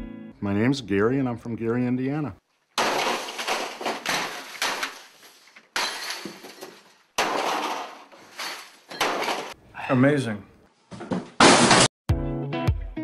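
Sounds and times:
loud crashes with rattling: 2.8s - 5.2s, 5.8s - 9.6s, 11.4s - 11.9s.

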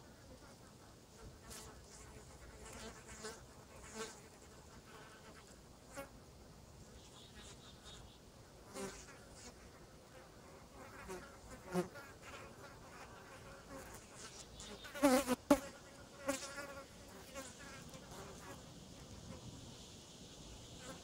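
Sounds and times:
flies buzzing: 8.7s - 19.6s.

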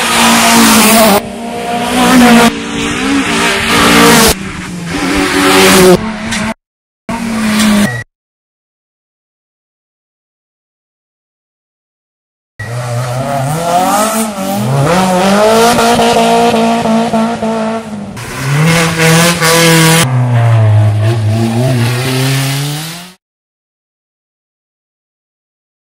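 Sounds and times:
rally car engine revving: 0.0s - 8.0s, 12.6s - 23.2s.

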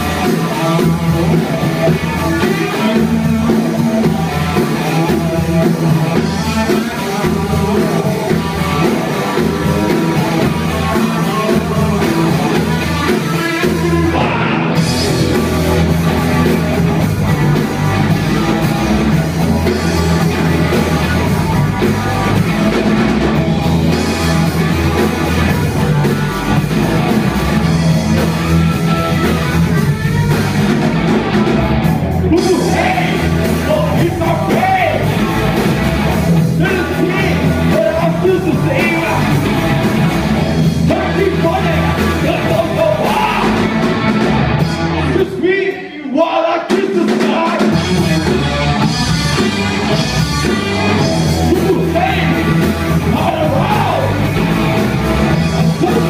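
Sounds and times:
person singing: 0.0s - 15.0s, 32.3s - 35.1s, 36.5s - 39.4s, 40.8s - 43.7s, 51.4s - 54.2s, 55.6s - 56.0s
electric guitars: 0.0s - 45.8s, 46.7s - 56.0s
drum kit: 0.0s - 45.9s, 46.6s - 56.0s
bass guitar: 0.0s - 56.0s.

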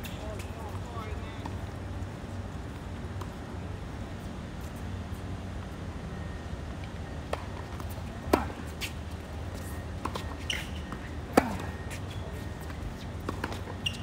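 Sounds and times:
ball bounces and footwork: 9.6s - 14.0s.

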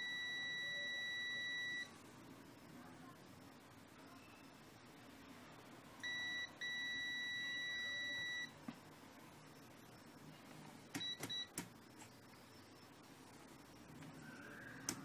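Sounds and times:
multimeter continuity beep: 0.0s - 1.9s, 6.0s - 8.6s, 10.9s - 12.9s.

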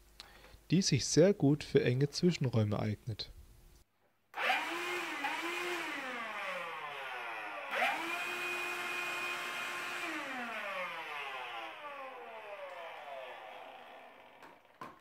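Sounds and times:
handheld vacuum motor whine: 4.4s - 14.7s.

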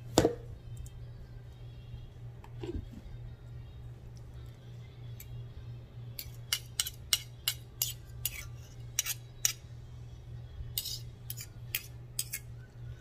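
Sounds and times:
metal fork clinking against spoon: 6.2s - 9.6s, 10.8s - 12.5s.

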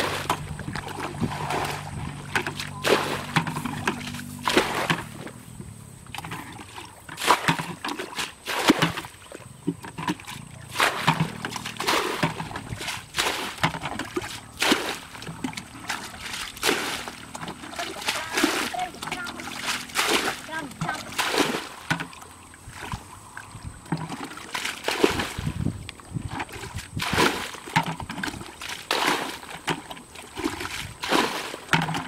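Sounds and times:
bucket scooping muddy water: 0.0s - 32.0s
water splashing and sloshing: 0.0s - 32.0s.

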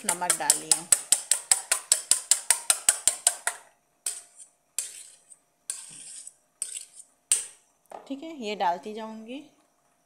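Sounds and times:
taps on metal bowl: 0.0s - 3.7s
knife beating eggs in metal bowl: 0.0s - 7.6s.

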